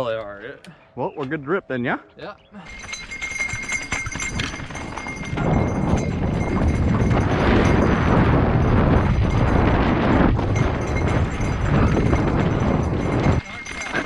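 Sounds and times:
wind on microphone: 2.7 - 14.0
bike tyres rolling over dirt: 2.9 - 14.0.

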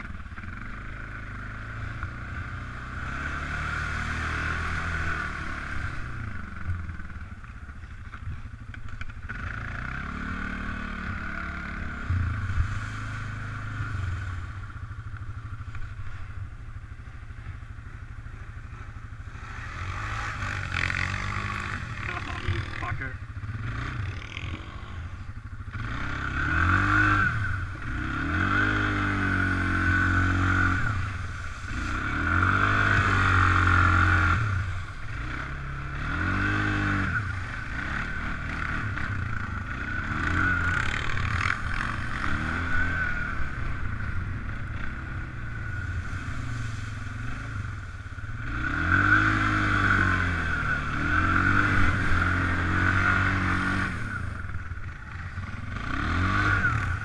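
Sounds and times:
quad engine revving: 0.0 - 7.3, 8.9 - 14.9, 17.3 - 57.0
mud and slush spraying: 27.5 - 35.3, 45.6 - 50.1.

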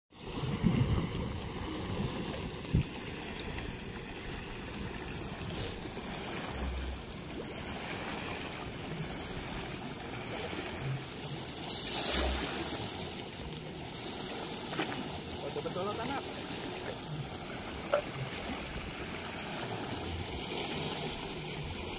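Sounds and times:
river water lapping: 0.1 - 21.9
wind on microphone: 0.2 - 9.7.

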